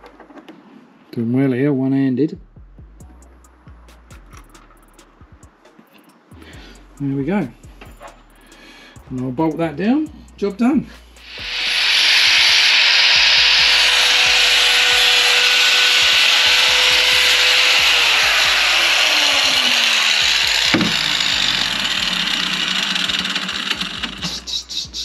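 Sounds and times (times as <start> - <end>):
angle grinder grinding metal: 11.2 - 25.0.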